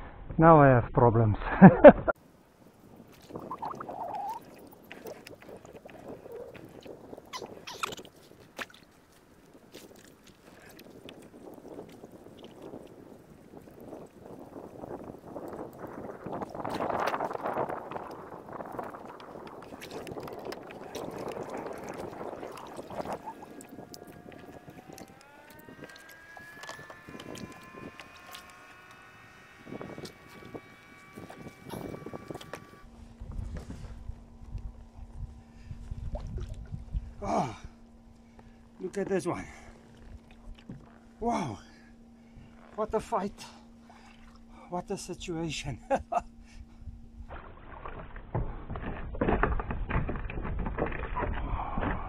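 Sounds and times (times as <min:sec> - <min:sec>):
water sloshing against kayak: 0:02.3 - 0:44.7, 0:46.3 - 0:52.0
motor-like whine: 0:11.0 - 0:48.2
knocks and clicks from hull: 0:47.3 - 0:52.0.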